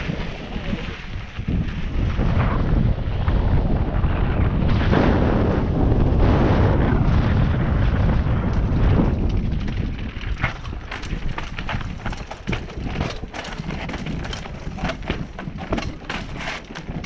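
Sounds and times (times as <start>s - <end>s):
mountain bike rumble and rattle: 0.0s - 17.0s
wind buffeting microphone: 0.0s - 17.0s.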